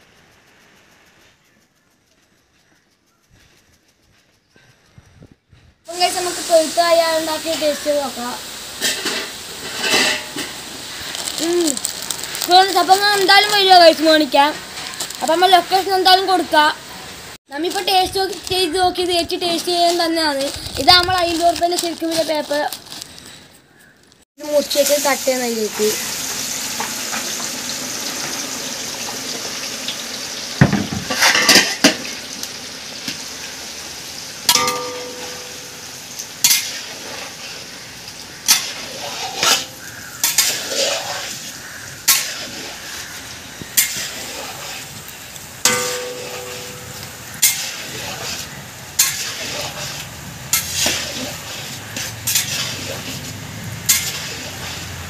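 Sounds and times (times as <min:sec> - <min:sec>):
banana slices sizzling in oil: 0:05.9 - 0:55.0
metal spoon scraping a pan: 0:08.7 - 0:11.4, 0:31.0 - 0:32.1, 0:34.5 - 0:55.0.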